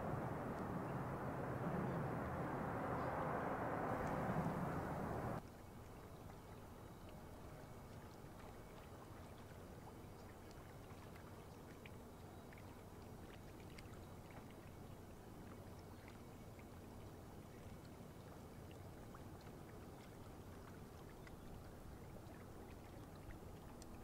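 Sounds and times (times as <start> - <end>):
steady low rumble: 0.0 - 5.4.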